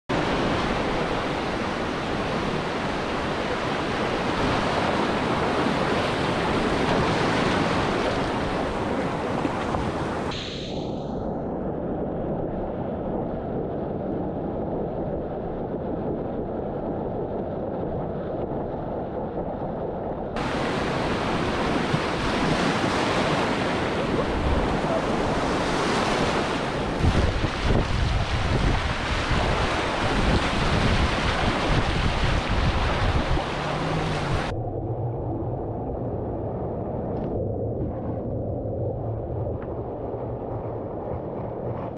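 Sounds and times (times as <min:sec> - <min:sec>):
ocean surf breaking: 0:00.1 - 0:11.2, 0:20.4 - 0:34.6
wind buffeting microphone: 0:00.1 - 0:41.9.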